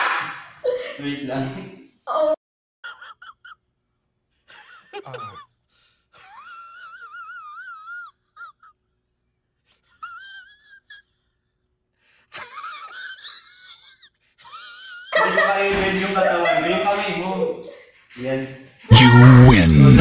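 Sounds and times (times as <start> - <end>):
person squealing: 5.0 - 5.4, 18.9 - 20.0
person crying out: 18.9 - 20.0.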